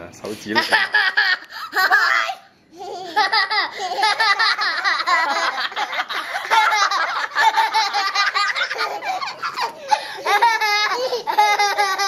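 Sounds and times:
young children laughing: 0.6s - 12.0s.

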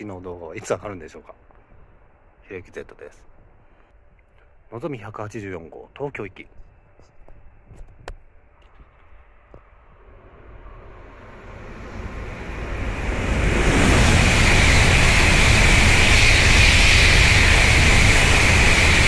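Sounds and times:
bullet train rushing past: 9.7s - 19.0s.

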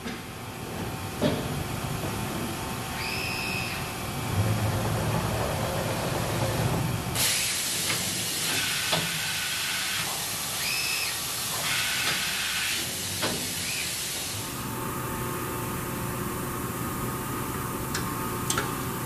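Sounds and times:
machine low hum: 0.0s - 7.2s.

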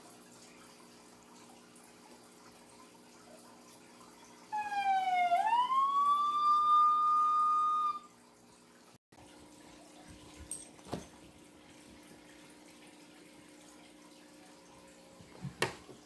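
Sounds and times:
whistled note sweeping up: 4.6s - 8.1s.

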